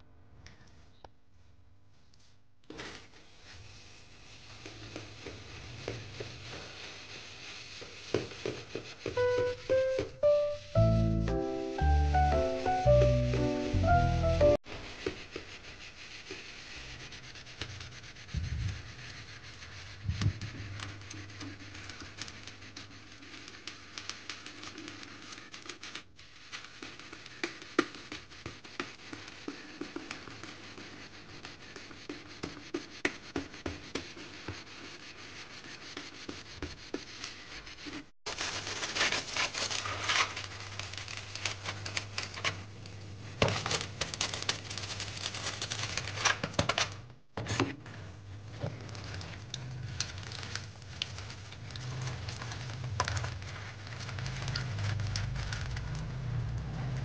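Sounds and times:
sponge scrubbing a metal saucepan: 0:03.2 - 0:10.0, 0:14.6 - 0:23.5.

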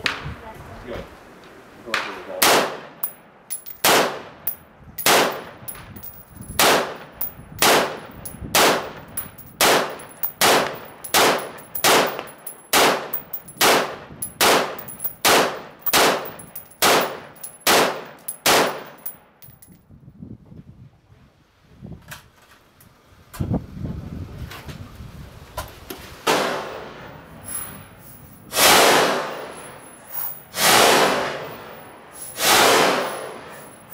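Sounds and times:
rifle gunshots: 0:02.4 - 0:03.1, 0:03.8 - 0:04.4, 0:05.0 - 0:05.6, 0:06.6 - 0:19.0.

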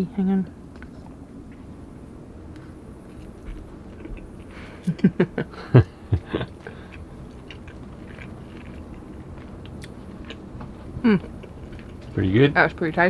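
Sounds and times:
person chewing: 0:02.5 - 0:05.0, 0:06.0 - 0:12.2.

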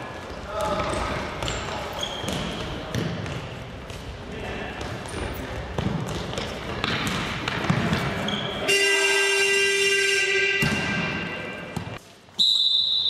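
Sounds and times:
ball kicks echoing: 0:04.8 - 0:08.2, 0:10.5 - 0:12.0
referee's whistle: 0:08.3 - 0:11.5, 0:12.4 - 0:13.0
horn blast: 0:08.6 - 0:11.8.

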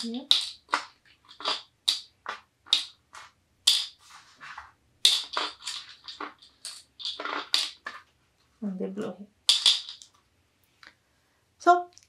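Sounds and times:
wooden beads clicking into container: 0:00.0 - 0:04.0, 0:05.0 - 0:08.0, 0:09.5 - 0:10.2.

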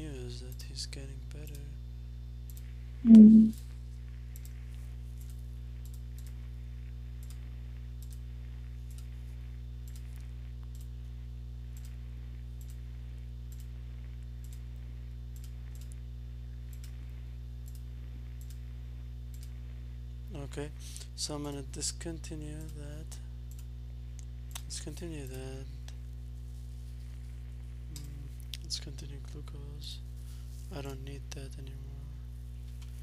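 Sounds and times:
low electrical hum: 0:00.0 - 0:33.0
brief pitched voice: 0:03.1 - 0:03.6.

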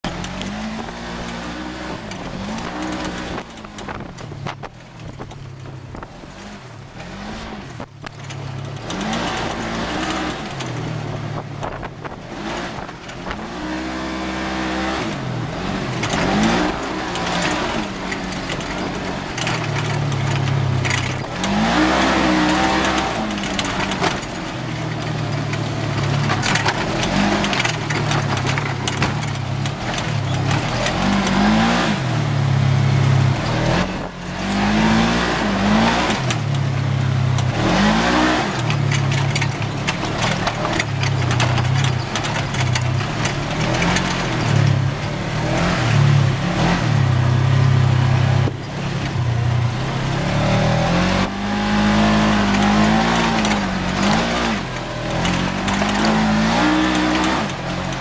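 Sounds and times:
tyres on gravel: 0:00.0 - 0:58.0
vehicle engine revving: 0:00.0 - 0:58.0
wind noise: 0:00.6 - 0:08.1, 0:08.9 - 0:24.4.

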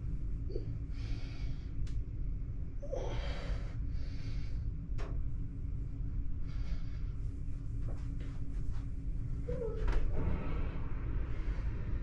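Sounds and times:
low room rumble: 0:00.0 - 0:12.0
person breathing softly: 0:00.5 - 0:02.0, 0:02.8 - 0:04.8, 0:06.3 - 0:07.8.

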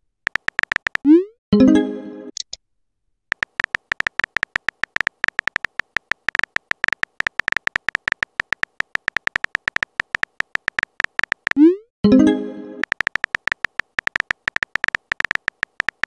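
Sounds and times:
phone keyboard taps: 0:00.3 - 0:01.1, 0:03.3 - 0:11.6, 0:12.8 - 0:16.0.

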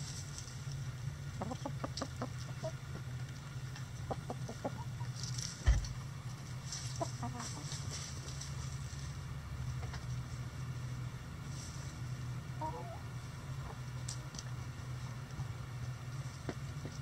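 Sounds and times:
steady low hum: 0:00.0 - 0:17.0
hens clucking: 0:01.2 - 0:05.5, 0:06.3 - 0:10.6, 0:11.7 - 0:15.6.

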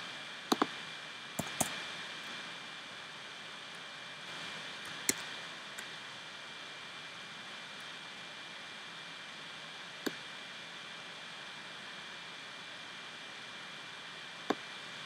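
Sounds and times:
steady low hiss: 0:00.0 - 0:15.0
computer mouse clicks: 0:00.5 - 0:00.7, 0:01.4 - 0:01.8.

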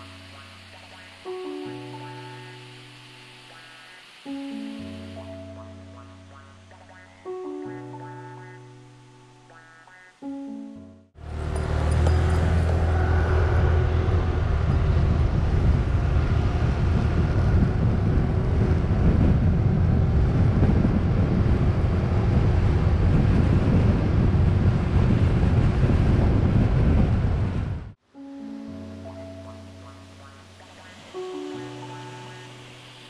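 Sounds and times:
motorbike engine: 0:11.2 - 0:27.2
road noise: 0:11.2 - 0:28.0, 0:29.0 - 0:33.0
wind rumble on microphone: 0:11.3 - 0:28.0.

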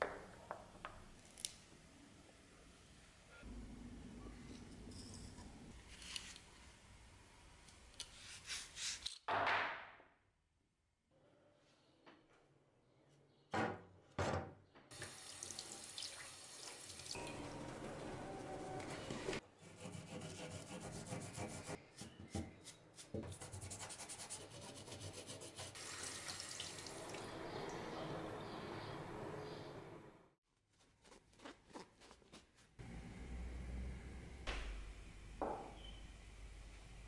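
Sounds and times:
water running into a steel sink: 0:14.9 - 0:17.8, 0:25.8 - 0:27.3.

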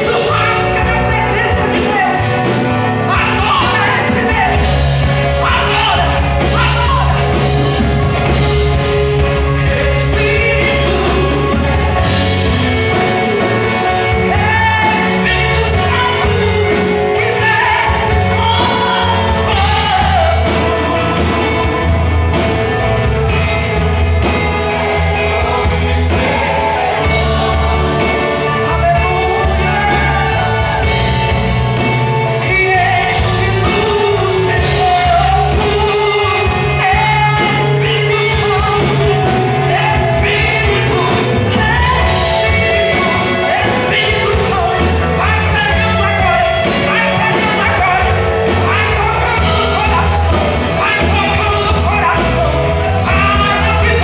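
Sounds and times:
drum kit: 0:00.0 - 0:54.0
electric guitars: 0:00.0 - 0:54.0
keyboard: 0:00.0 - 0:54.0
woman singing into microphone: 0:09.4 - 0:21.9, 0:25.2 - 0:31.4, 0:32.3 - 0:54.0.

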